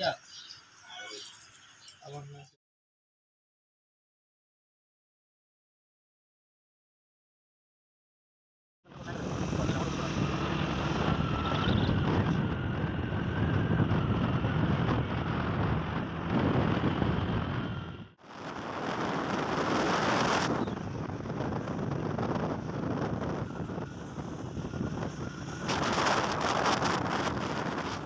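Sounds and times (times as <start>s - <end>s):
road noise: 8.9s - 28.0s
wind buffeting microphone: 9.0s - 28.0s.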